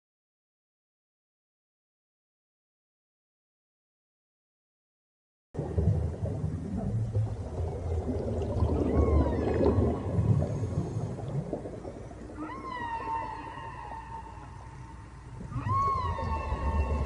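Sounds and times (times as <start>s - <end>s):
low rumble: 5.6s - 17.0s
long whale-like call: 8.4s - 17.0s.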